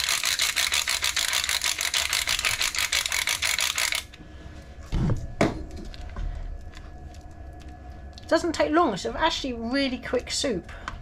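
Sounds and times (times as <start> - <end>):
pepper grinder ratcheting clicks: 0.0 - 4.2.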